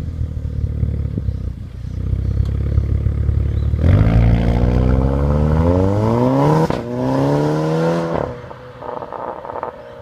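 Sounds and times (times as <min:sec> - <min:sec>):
car engine accelerating hard: 0:02.3 - 0:09.9.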